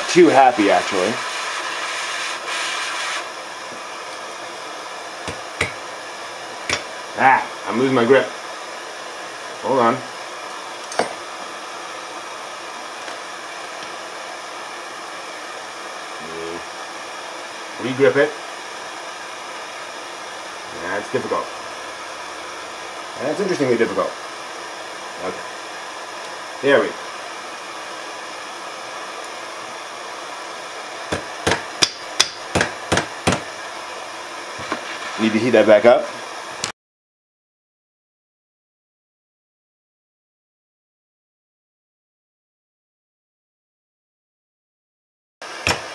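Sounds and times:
blowtorch hissing: 0.0s - 36.7s, 45.4s - 45.9s
hammer striking on anvil: 5.3s - 5.8s, 6.7s - 6.9s, 10.9s - 11.2s, 31.1s - 33.5s, 45.6s - 45.9s.

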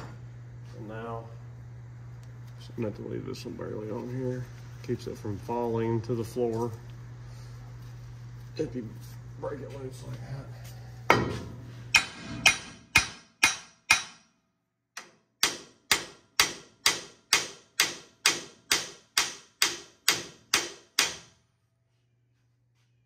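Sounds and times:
hammer striking steel: 11.1s - 14.4s, 15.0s - 21.3s.

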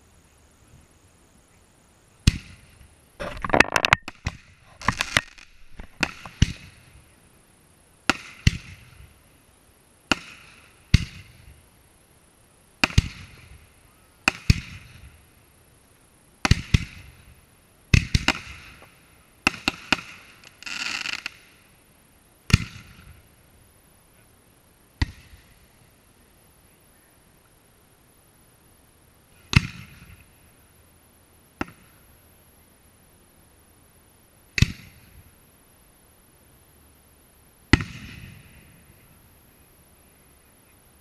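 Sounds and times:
firework bangs: 2.2s - 7.0s, 8.0s - 9.0s, 10.1s - 11.3s, 12.8s - 13.6s, 16.4s - 17.2s, 17.9s - 21.5s, 29.5s - 30.2s, 37.7s - 38.8s
firework hissing crackle: 4.0s - 24.1s.

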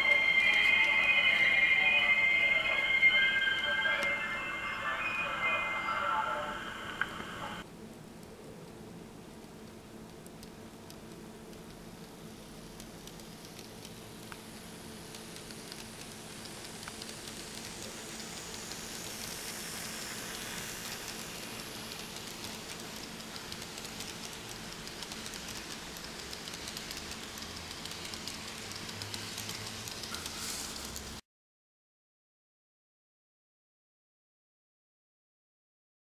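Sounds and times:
model train running on track: 0.0s - 7.6s, 15.2s - 31.2s.

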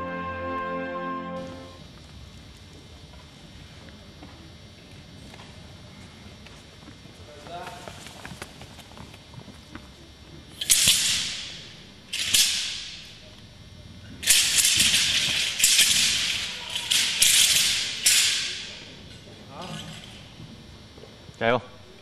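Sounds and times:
sword blade rattling: 10.6s - 13.1s, 14.2s - 19.0s.

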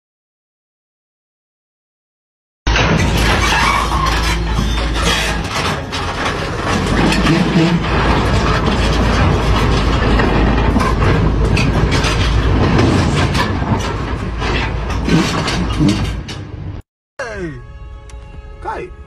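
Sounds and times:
excavator engine running: 2.7s - 16.8s
steel tracks clanking: 2.7s - 16.8s.

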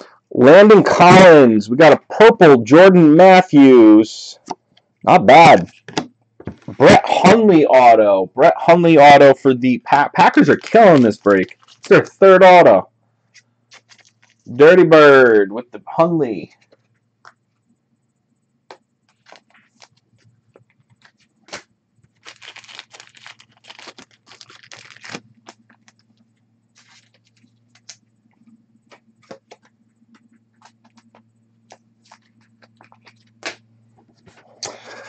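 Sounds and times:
faint low hum: 0.0s - 35.0s
foil wrapper tearing and crinkling: 10.2s - 12.2s, 13.7s - 14.5s, 19.1s - 20.0s, 21.0s - 26.2s, 26.8s - 28.0s
cards clicking and scraping: 13.3s - 14.5s, 18.7s - 35.0s.

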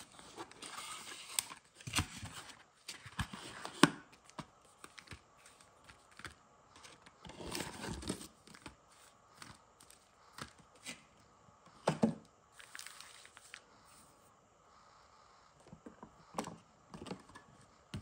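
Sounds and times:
foil packs crinkling: 12.5s - 13.6s.

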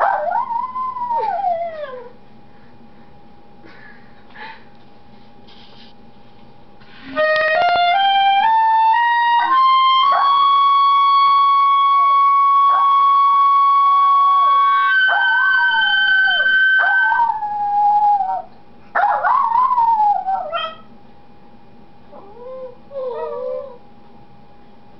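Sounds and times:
clarinet playing: 6.9s - 16.8s
dog howling: 13.9s - 20.9s.

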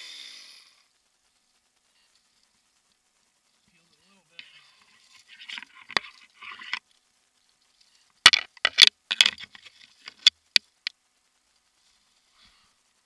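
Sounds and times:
rustling scrape: 1.3s - 10.3s
hardware clicking and knocking: 8.3s - 10.6s.

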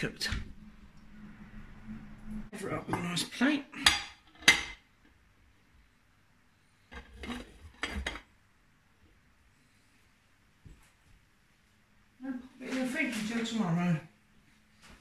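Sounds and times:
plate scraping on bowl: 6.9s - 8.2s.

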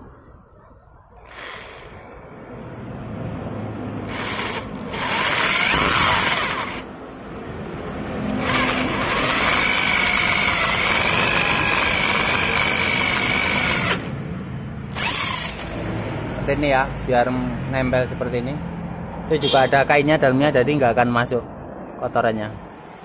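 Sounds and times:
electric drill boring metal: 1.2s - 2.2s, 4.0s - 6.9s, 8.3s - 14.1s, 14.9s - 15.8s.

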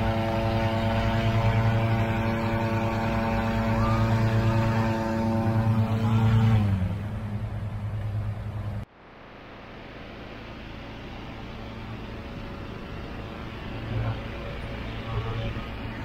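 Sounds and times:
engine-driven fan running: 0.0s - 16.0s.

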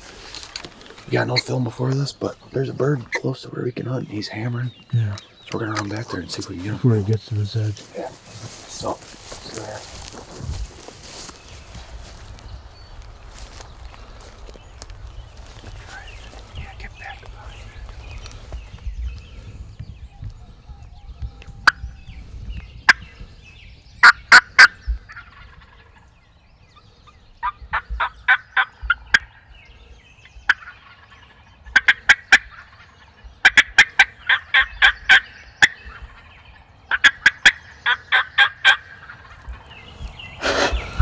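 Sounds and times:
wild turkey yelping: 24.0s - 26.0s, 27.4s - 29.3s, 30.5s - 39.7s.

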